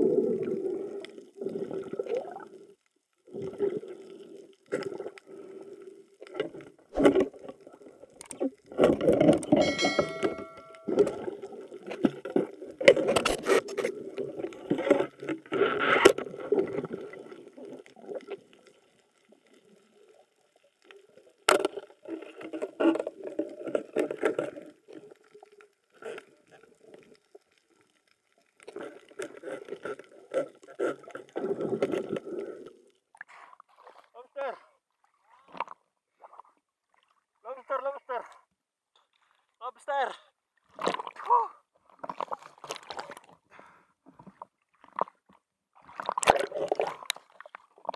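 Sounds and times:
muffled underwater water rushing: 0.0 - 21.4, 41.8 - 47.9.

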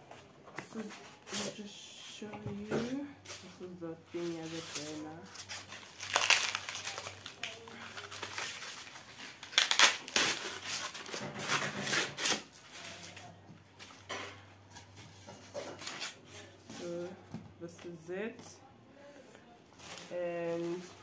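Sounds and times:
cardboard packaging rustling: 3.3 - 14.0, 19.8 - 21.0.

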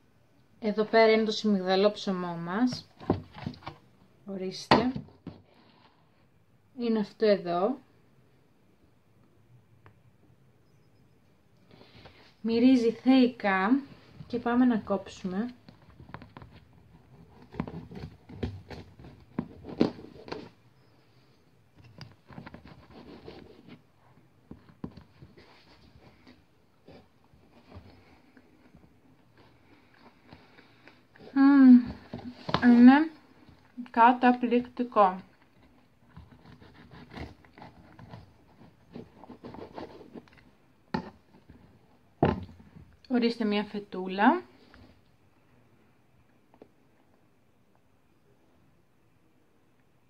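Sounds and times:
crumbly rustling of bread: 35.1 - 42.8
knife cutting crumbly bread: 36.2 - 40.0.

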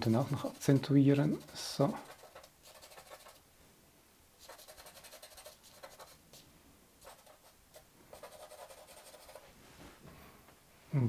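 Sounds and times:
charcoal scratching on paper: 0.0 - 3.4, 4.4 - 9.5.

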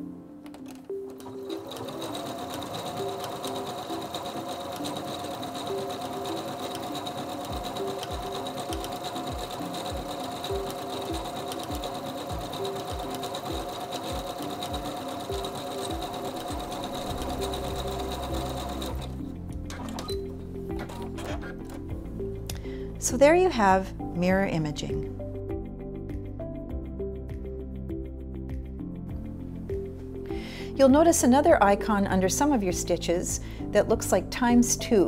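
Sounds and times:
needle mechanism ticking: 0.6 - 19.2
sewing machine motor whining: 1.1 - 19.2.

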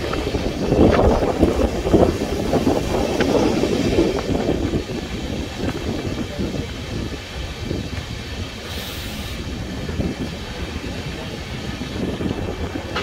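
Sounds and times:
train wheels rumbling on track: 0.0 - 13.0
brief hiss: 8.7 - 9.4.

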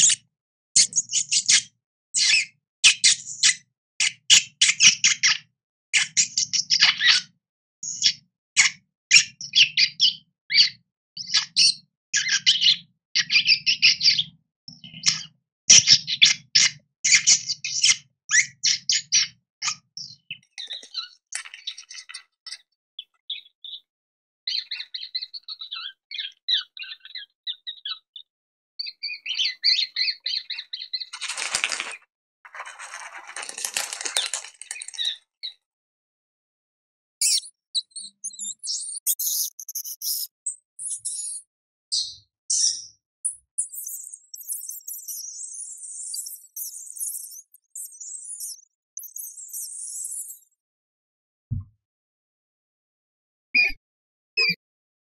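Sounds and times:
rodents squeaking: 0.0 - 0.2, 0.8 - 5.4, 17.1 - 23.8, 28.8 - 35.2, 37.2 - 41.5, 42.5 - 50.5.

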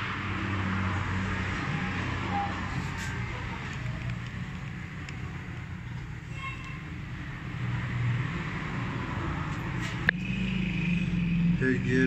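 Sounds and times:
low mechanical rumble: 1.0 - 9.3.

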